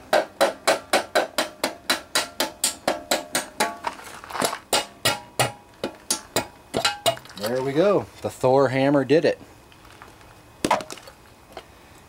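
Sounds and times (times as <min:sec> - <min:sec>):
hammer tapping on sheet metal: 0:00.1 - 0:03.8, 0:04.7 - 0:07.2.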